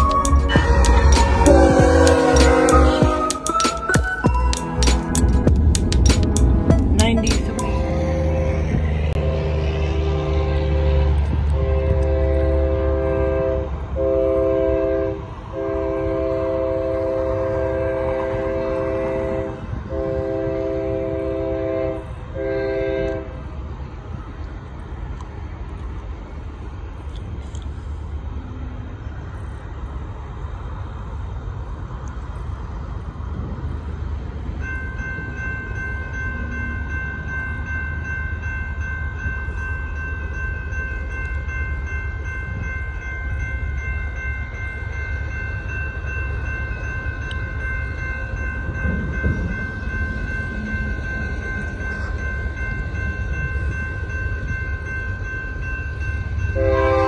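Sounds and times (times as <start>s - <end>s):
locomotive air horn: 0.0s - 3.6s, 7.8s - 23.4s, 56.6s - 57.0s
train rumble: 0.0s - 57.0s.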